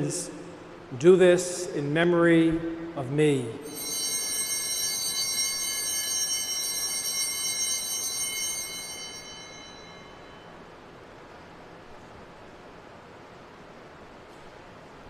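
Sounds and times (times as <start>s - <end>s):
altar bells ringing: 3.6s - 10.7s.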